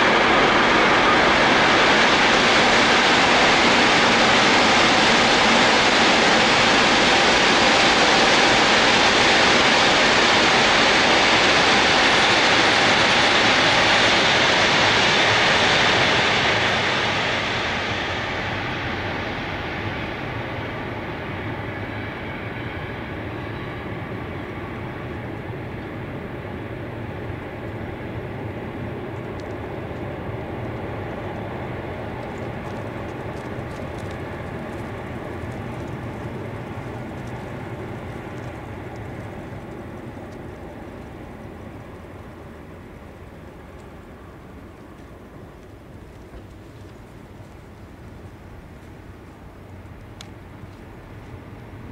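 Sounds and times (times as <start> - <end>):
train wheels rumbling on rails: 0.0 - 51.9.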